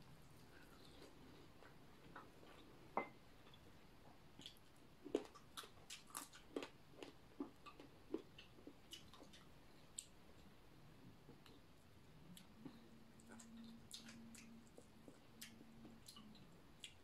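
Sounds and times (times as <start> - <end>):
clicks and smacks of eating: 4.3 - 10.5, 12.3 - 17.0
chewing: 4.4 - 10.2, 11.3 - 17.0.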